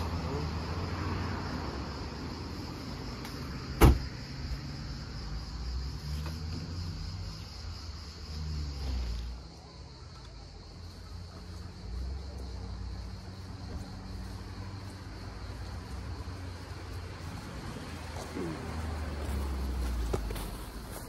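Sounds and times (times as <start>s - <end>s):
car rear hatch slamming: 3.7s - 4.1s.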